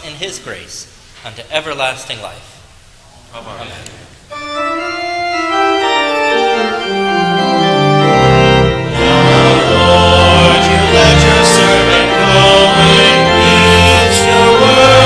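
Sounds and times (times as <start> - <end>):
church organ playing: 4.3 - 15.0
deep organ pedal bass: 4.3 - 15.0.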